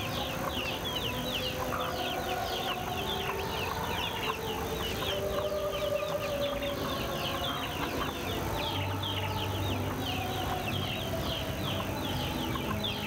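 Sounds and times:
chickens clucking: 0.0s - 13.0s
small birds chirping: 0.0s - 13.0s.

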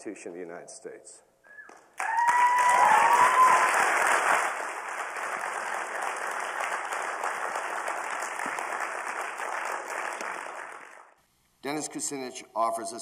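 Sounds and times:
cheering call: 2.0s - 4.3s
audience applauding: 2.0s - 11.2s.

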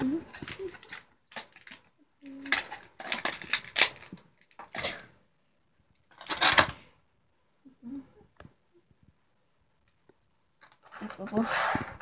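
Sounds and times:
plastic packaging crinkling: 0.0s - 5.1s, 6.0s - 6.8s.

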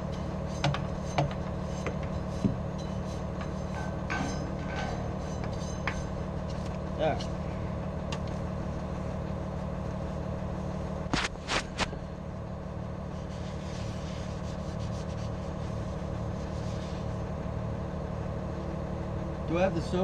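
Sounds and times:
rag rubbing on metal: 0.0s - 6.6s
engine idling: 0.0s - 20.0s.

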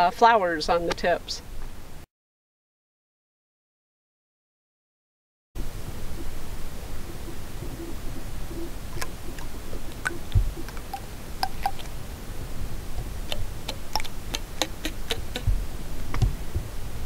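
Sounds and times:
wind rumble on microphone: 5.6s - 11.0s, 11.7s - 17.0s.

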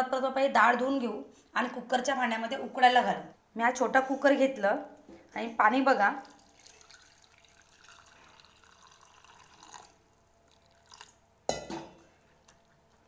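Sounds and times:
water pouring into pot: 5.8s - 11.2s.

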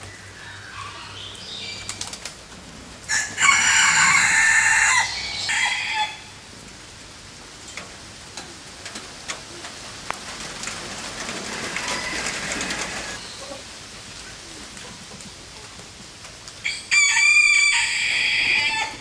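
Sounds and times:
rain: 0.0s - 19.0s
rooster crowing: 3.1s - 6.4s, 11.6s - 13.2s, 16.6s - 19.0s.

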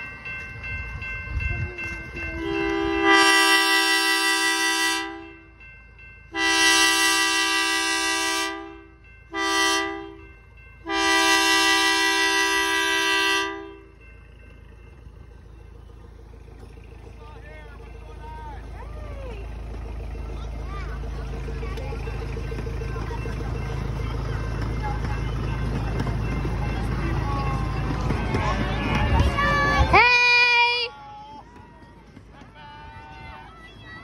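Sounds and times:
locomotive horn blasts: 2.3s - 5.4s, 6.3s - 13.9s, 28.5s - 31.0s, 32.6s - 33.7s.

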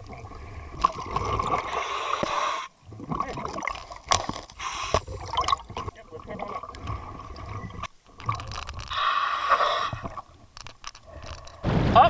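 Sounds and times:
regulator breathing hiss: 1.7s - 2.8s, 4.6s - 5.3s, 8.9s - 10.2s.

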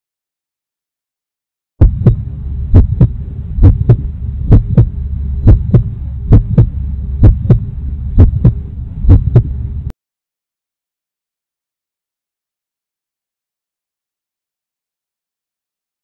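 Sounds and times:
heartbeat thumps: 1.8s - 9.6s
low hum: 1.8s - 9.9s.

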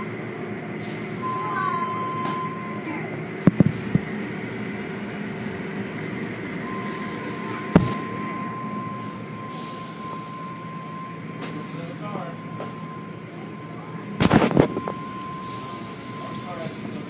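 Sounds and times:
car wash machinery and water: 0.0s - 17.0s
steady high tone: 1.2s - 3.1s, 6.6s - 17.0s.

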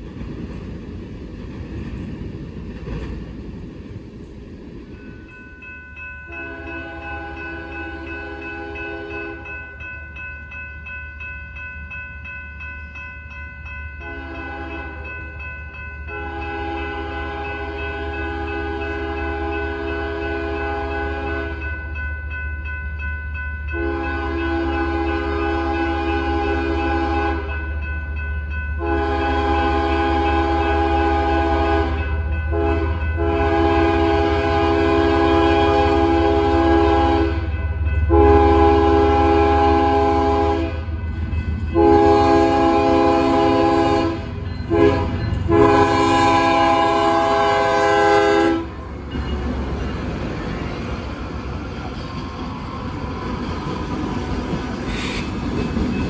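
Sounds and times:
train rumbling and rolling: 0.0s - 56.0s
locomotive air horn blasts: 6.3s - 9.4s, 14.0s - 15.1s, 16.1s - 21.6s, 23.8s - 27.6s, 28.8s - 37.5s, 38.1s - 40.9s, 41.7s - 48.8s.

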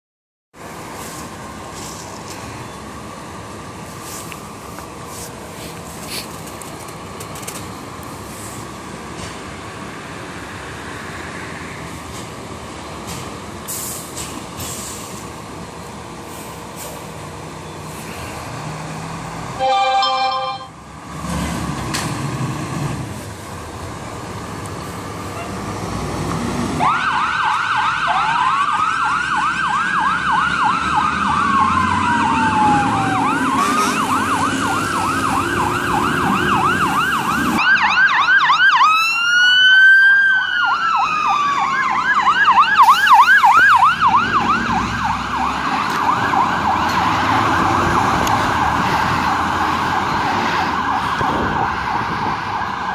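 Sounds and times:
fire engine rumble and revving: 0.5s - 52.9s
air horn blast: 19.6s - 20.8s
higher sweeping siren: 26.8s - 52.9s
wailing siren with yelp: 26.8s - 52.9s.

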